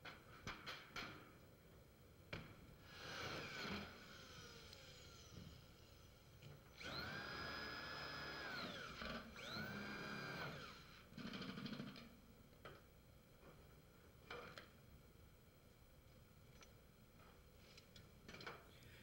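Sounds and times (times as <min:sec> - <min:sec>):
cordless drill motor whine: 0:02.9 - 0:11.5.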